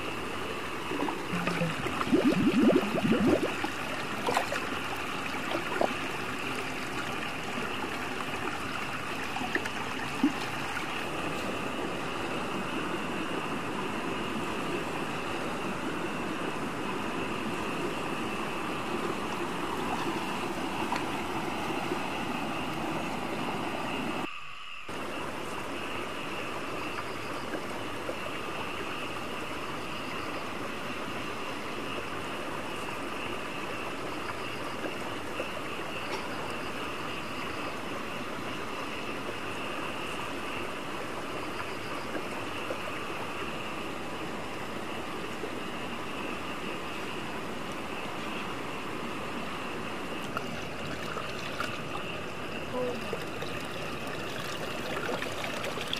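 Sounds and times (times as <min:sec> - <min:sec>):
stream water rushing over rocks: 0:00.0 - 0:24.3, 0:42.2 - 0:55.9.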